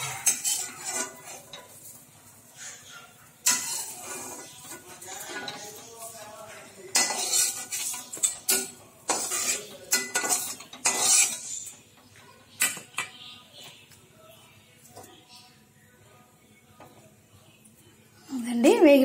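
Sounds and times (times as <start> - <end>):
spatula scraping metal pan: 0.0 - 11.9.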